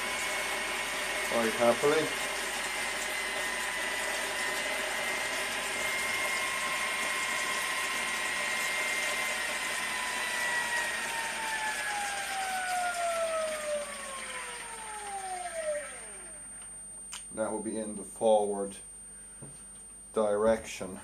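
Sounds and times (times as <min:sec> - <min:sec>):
electric motor whine: 0:00.0 - 0:16.7.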